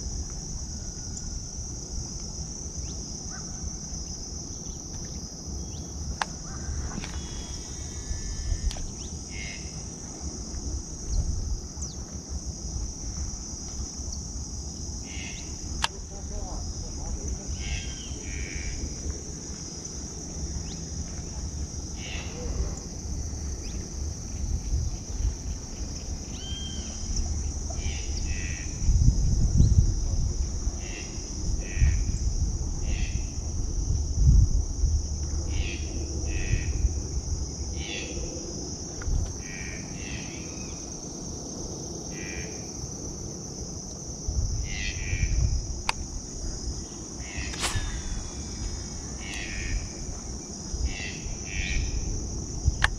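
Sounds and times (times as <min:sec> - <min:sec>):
high-pitched insect chorus: 0:00.0 - 0:52.9
low rumbles: 0:44.3 - 0:51.0.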